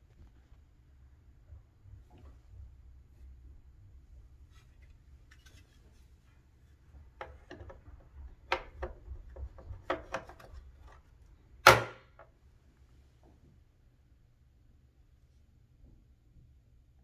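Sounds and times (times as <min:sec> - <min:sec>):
plastic cover clicking and knocking: 0:07.2 - 0:11.0, 0:11.6 - 0:12.3.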